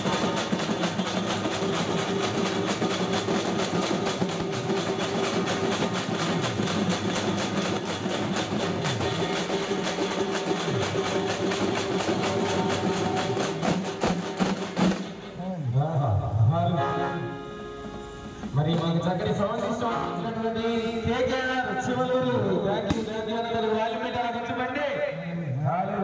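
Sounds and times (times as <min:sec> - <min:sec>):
frame drums beaten with sticks: 0:00.0 - 0:15.4.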